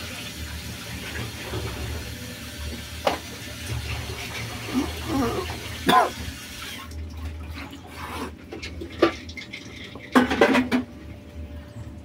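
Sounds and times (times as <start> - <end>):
cat snarling: 4.7 - 5.6.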